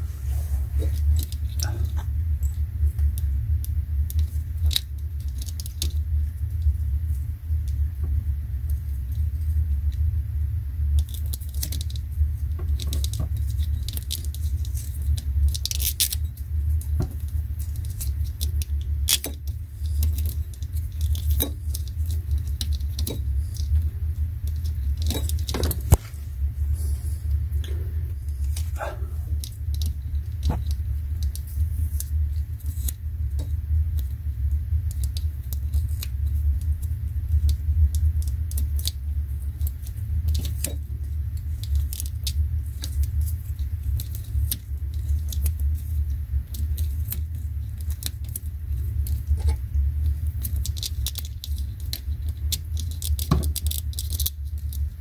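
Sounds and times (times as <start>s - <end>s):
small clicks and crinkles: 0.7s - 55.0s
low rumble: 16.2s - 40.3s.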